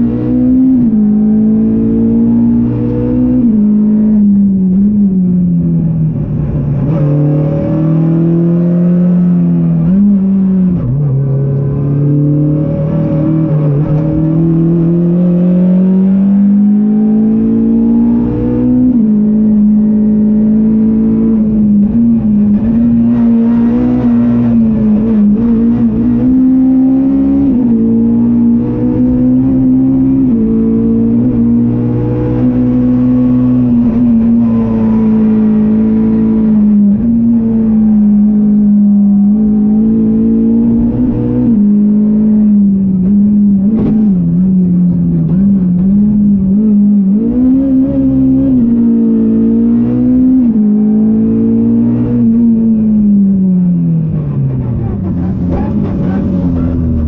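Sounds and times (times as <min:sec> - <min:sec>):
rally car engine revving: 0:00.0 - 0:57.0.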